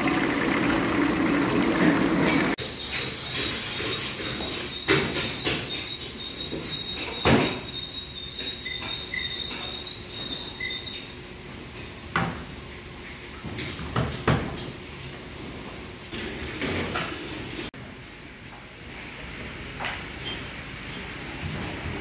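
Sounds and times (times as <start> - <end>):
high whine: 2.6 - 11.1.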